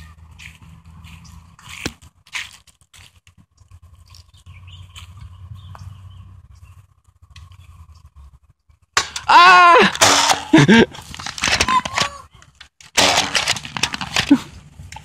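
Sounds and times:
footsteps on grass and dirt: 0:00.0 - 0:06.0.

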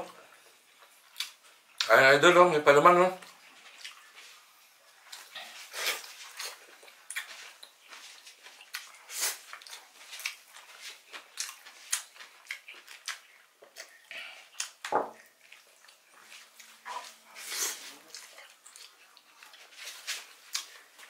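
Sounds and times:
chewing and lip-smacking: 0:00.4 - 0:01.9, 0:03.2 - 0:21.0.

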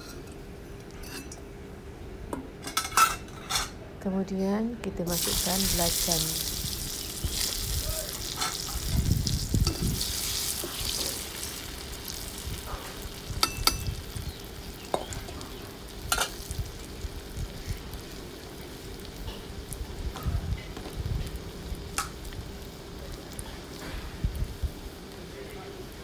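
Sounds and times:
paste sizzling in hot oil: 0:05.1 - 0:20.2.

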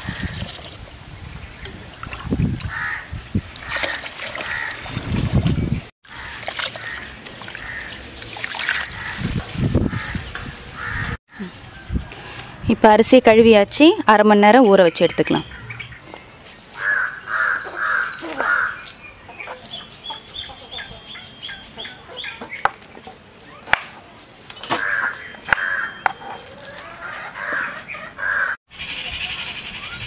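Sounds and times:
chickens clucking: 0:19.2 - 0:23.3.

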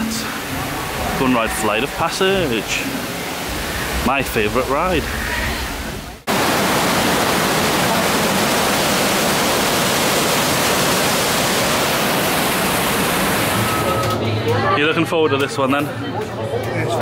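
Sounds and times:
waterfall rushing: 0:00.0 - 0:14.2.

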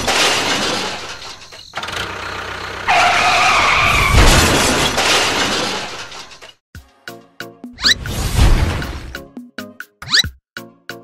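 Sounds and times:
skidding screech: 0:00.1 - 0:06.4
noisy crash: 0:03.9 - 0:06.3, 0:08.1 - 0:09.1.

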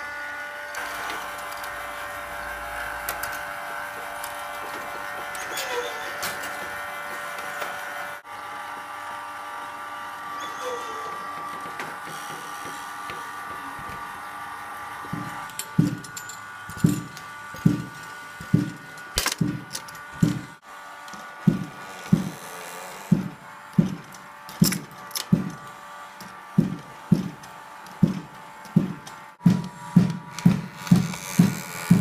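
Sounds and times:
wooden machine whirring: 0:00.1 - 0:08.9, 0:10.0 - 0:32.0
balls bouncing on wood: 0:11.3 - 0:14.0, 0:21.4 - 0:22.4.

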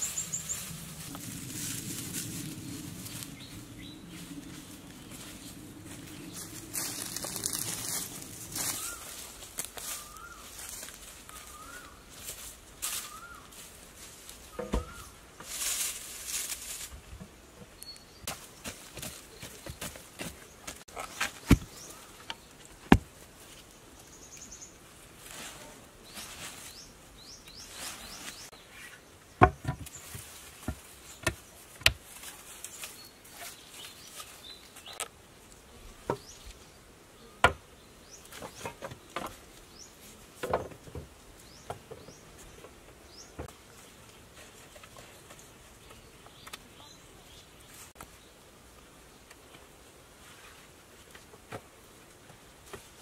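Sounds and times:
wooden poles knocking: 0:14.6 - 0:15.0, 0:29.4 - 0:29.9.

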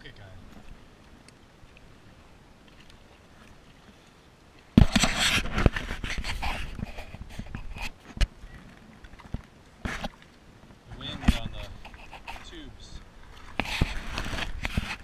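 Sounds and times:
body rubbing and scraping on camera: 0:04.8 - 0:08.3, 0:10.9 - 0:15.0.

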